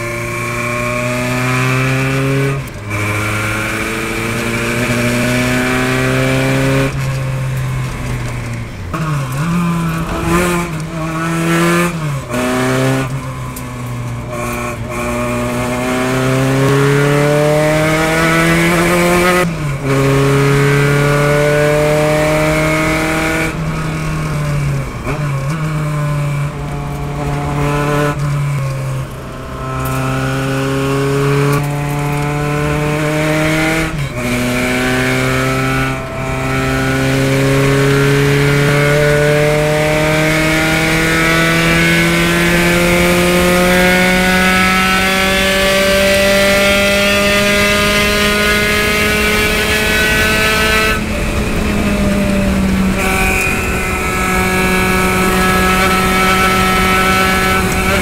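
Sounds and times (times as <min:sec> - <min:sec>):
racing car engine: 0:00.0 - 0:58.0
wind rush: 0:46.7 - 0:58.0.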